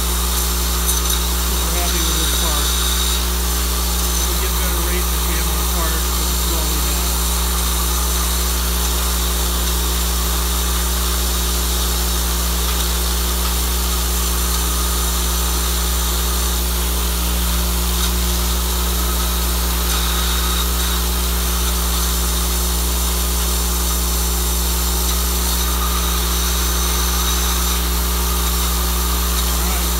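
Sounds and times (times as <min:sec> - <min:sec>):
low machine hum: 0:00.0 - 0:10.1.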